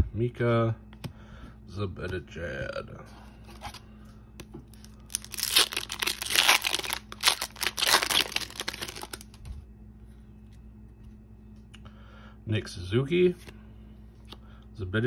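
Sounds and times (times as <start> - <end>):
foil wrapper tearing and crinkling: 4.8 - 9.4.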